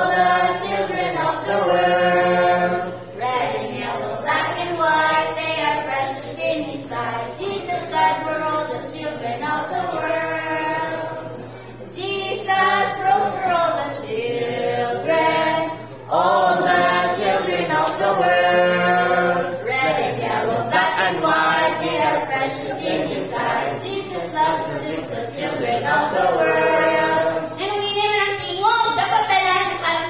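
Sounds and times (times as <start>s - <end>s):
girl singing unaccompanied: 3.1s - 11.2s, 11.9s - 14.2s.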